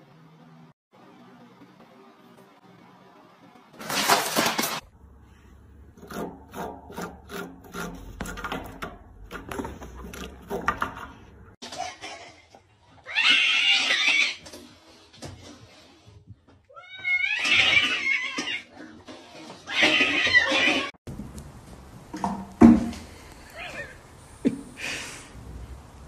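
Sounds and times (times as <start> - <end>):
claws scratching rope post: 5.9 - 11.4.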